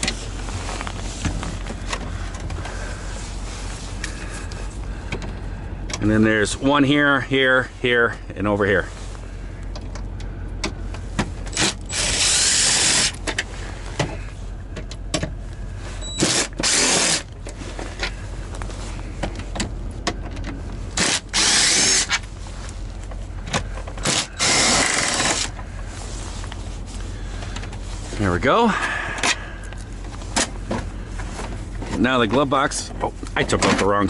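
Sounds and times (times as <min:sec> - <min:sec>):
steady low hum: 0:00.0 - 0:34.0
cordless drill backing out screws: 0:16.1 - 0:17.3, 0:21.0 - 0:22.2, 0:24.0 - 0:25.5
handling clicks and knocks: 0:17.3 - 0:20.8.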